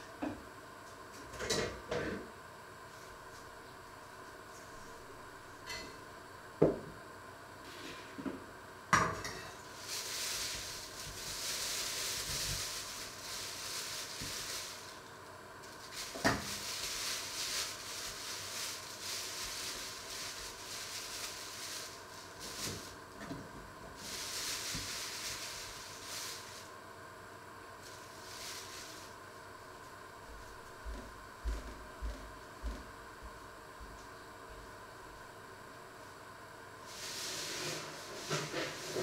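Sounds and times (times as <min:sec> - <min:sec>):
plastic bag rustling: 0:09.2 - 0:26.8, 0:27.8 - 0:29.3, 0:36.8 - 0:39.0.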